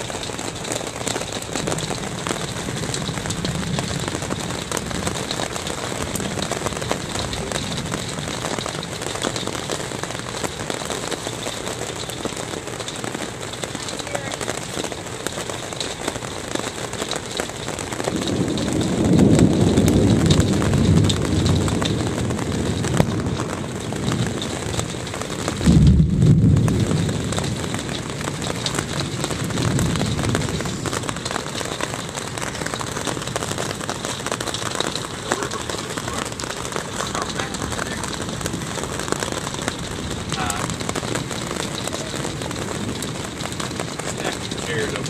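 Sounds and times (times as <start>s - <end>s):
hail and rain on roof: 0.0s - 45.0s
deep rumble: 18.1s - 45.0s.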